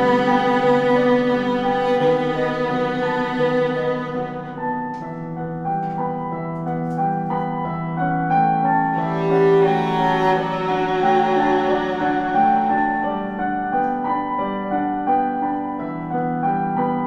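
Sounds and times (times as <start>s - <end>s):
viola bowed notes: 0.0s - 6.0s, 8.6s - 14.2s
piano chords: 0.0s - 17.0s.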